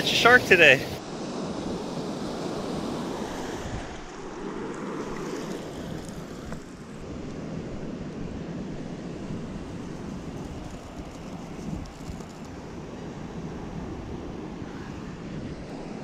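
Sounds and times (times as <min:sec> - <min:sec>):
ocean surf washing up: 0:00.0 - 0:16.0
wind buffeting microphone: 0:01.6 - 0:16.0.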